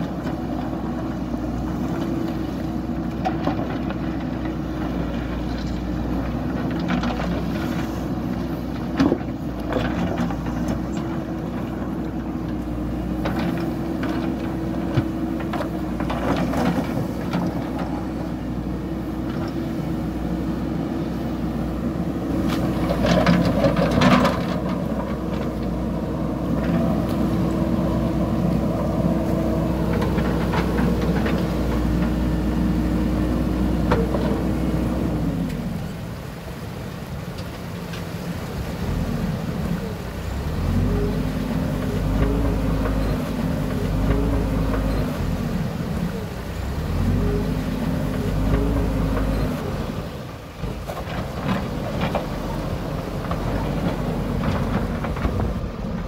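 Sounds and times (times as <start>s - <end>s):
diesel engine running: 0.0s - 56.0s
digger bucket knocks and clanks: 8.8s - 11.7s, 22.5s - 25.6s.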